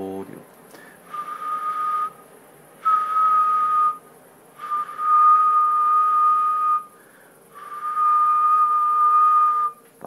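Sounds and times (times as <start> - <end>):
person whistling single note: 0.8 - 9.9.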